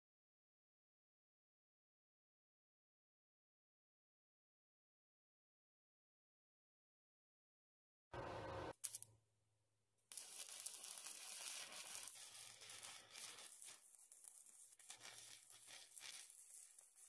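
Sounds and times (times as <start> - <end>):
welding arc crackling: 8.7 - 9.1, 10.1 - 17.0.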